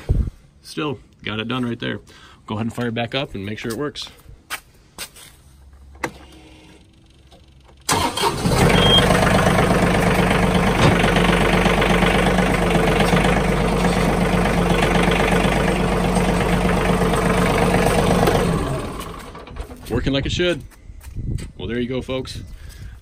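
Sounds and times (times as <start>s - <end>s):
tractor diesel engine running: 7.0s - 20.4s.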